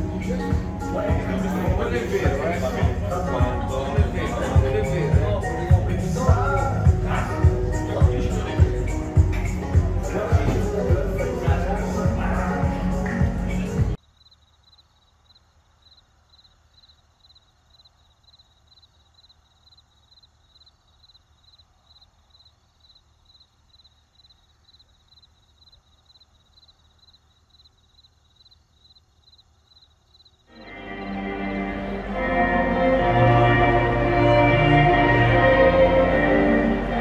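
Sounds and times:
faint cricket chirping: 14.0s - 31.4s.

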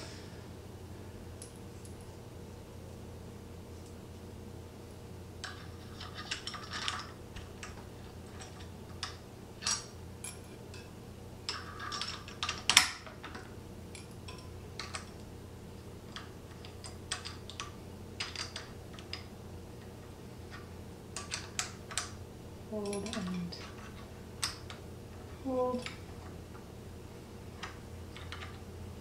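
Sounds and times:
metal tools clicking on metal: 22.8s - 24.8s.

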